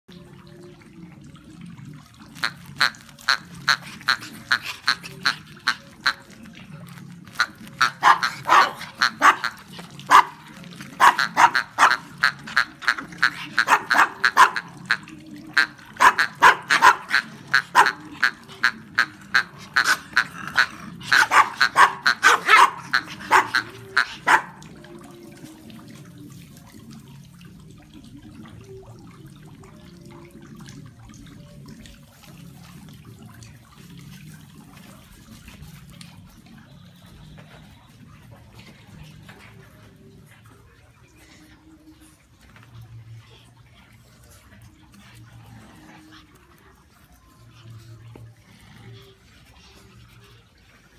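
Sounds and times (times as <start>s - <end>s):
small dogs yapping: 7.4s - 15.0s, 16.0s - 24.6s.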